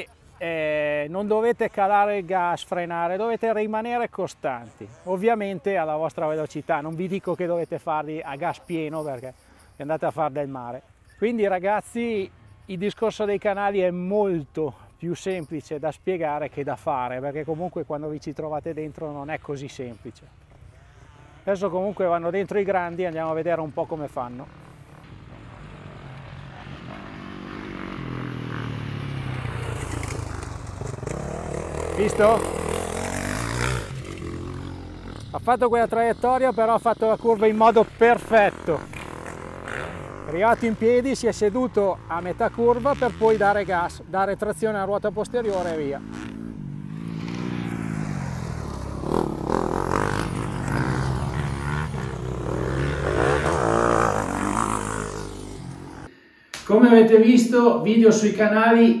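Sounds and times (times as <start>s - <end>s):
motocross bike engine running: 24.5s - 44.0s, 44.8s - 56.1s.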